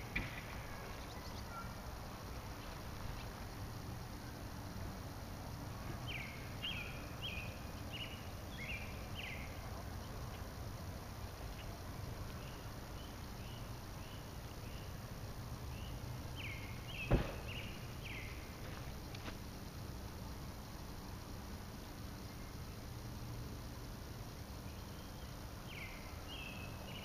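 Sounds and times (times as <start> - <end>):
low outdoor rumble: 0.0 - 27.0
sharp knock: 17.1 - 17.6.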